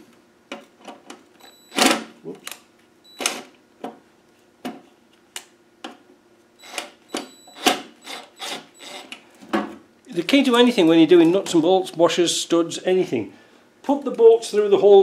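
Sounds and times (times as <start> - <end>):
cordless drill driving screws: 7.6 - 9.2.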